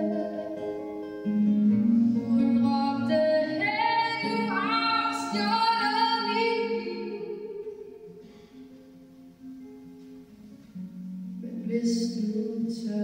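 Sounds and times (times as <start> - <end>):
woman singing: 0.0 - 0.9, 2.2 - 8.1, 11.4 - 13.0
acoustic guitar: 0.0 - 13.0.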